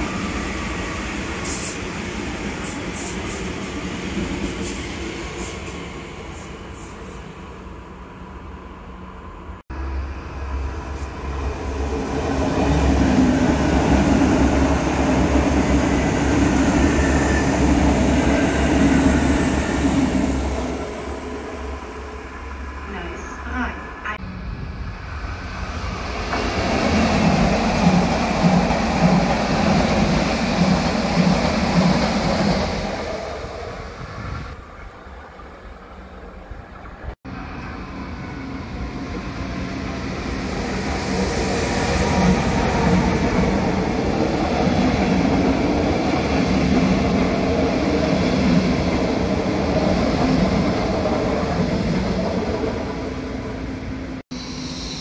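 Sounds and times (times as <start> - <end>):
train wheels on rails: 0.0 - 7.4, 24.5 - 35.9.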